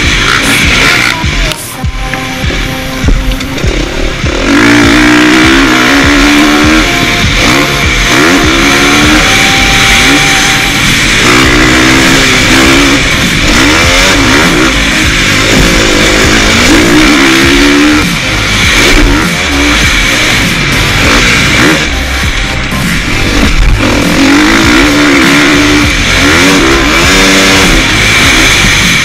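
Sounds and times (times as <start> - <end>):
motocross engine revving: 0.0 - 29.0.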